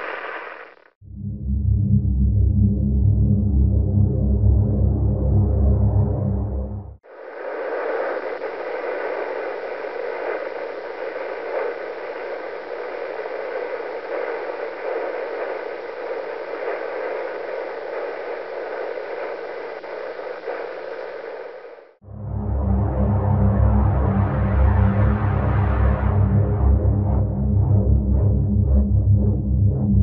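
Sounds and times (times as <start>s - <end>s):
radio static hiss: 0.0s - 1.0s, 7.0s - 22.0s
faint pulsing beats: 1.0s - 30.0s.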